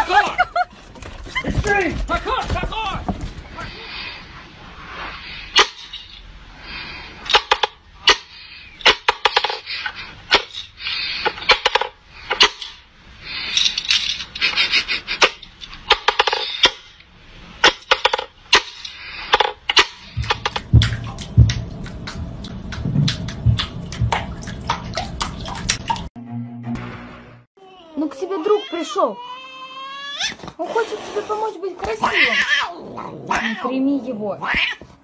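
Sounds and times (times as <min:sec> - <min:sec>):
wooden toy clacks and knocks: 0:11.3 - 0:12.7, 0:15.7 - 0:16.8, 0:17.7 - 0:21.6.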